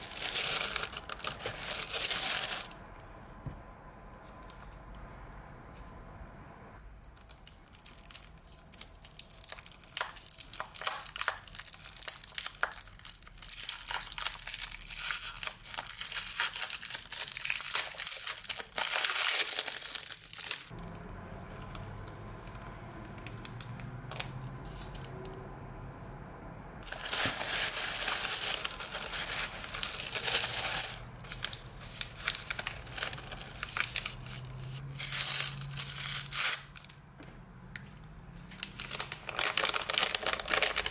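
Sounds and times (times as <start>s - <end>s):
tissue paper crinkling: 0.0s - 2.8s, 7.8s - 20.8s, 26.8s - 36.7s, 38.6s - 40.9s.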